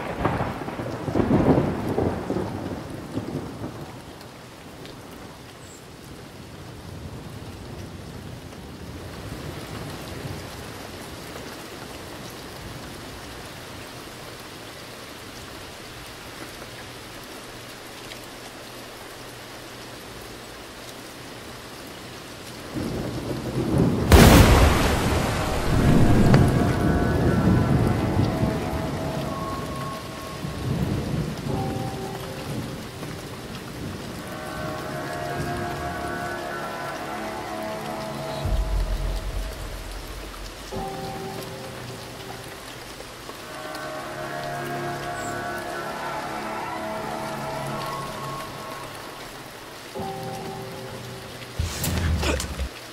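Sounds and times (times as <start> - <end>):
thunderclap crack and rumble: 0.0 - 4.3, 22.7 - 29.8, 38.4 - 42.6
steady rain: 0.0 - 52.9.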